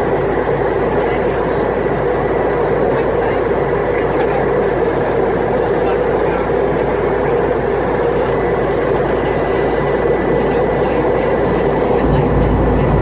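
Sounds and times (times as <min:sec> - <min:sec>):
airliner cabin noise: 0:00.0 - 0:13.0
deep rumble: 0:10.3 - 0:13.0.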